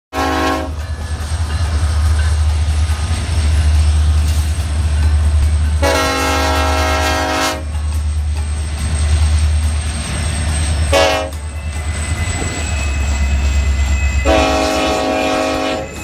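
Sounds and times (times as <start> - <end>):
train air horn blasts: 0.1 - 0.8, 5.8 - 7.8, 10.9 - 11.5, 14.2 - 16.0
diesel locomotive rumble: 0.1 - 16.0.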